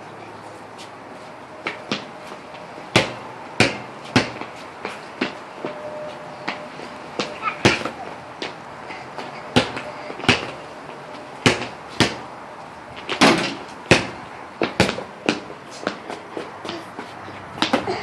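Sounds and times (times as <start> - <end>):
basketball bouncing on concrete: 1.6 - 2.1, 2.9 - 5.8, 6.4 - 8.6, 9.2 - 12.3, 13.0 - 18.0.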